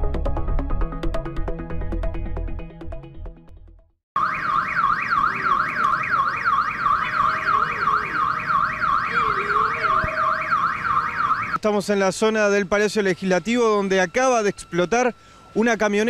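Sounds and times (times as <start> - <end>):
intro music: 0.0 - 3.9
electronic siren sweeping: 4.2 - 16.0.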